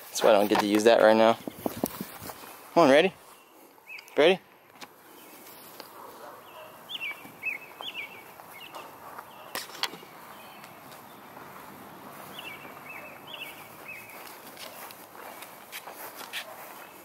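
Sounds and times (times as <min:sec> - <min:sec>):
faint rustling on grass: 0:00.0 - 0:17.0
songbird chirping: 0:00.3 - 0:17.0.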